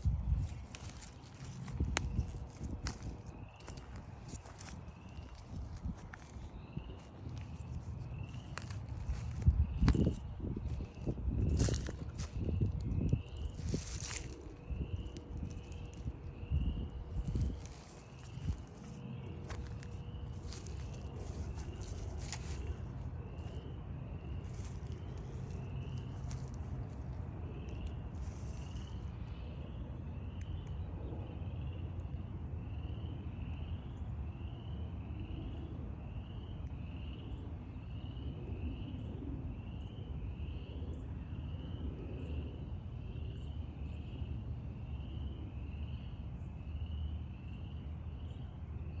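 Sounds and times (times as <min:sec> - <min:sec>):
low rumble: 0:00.0 - 0:29.6.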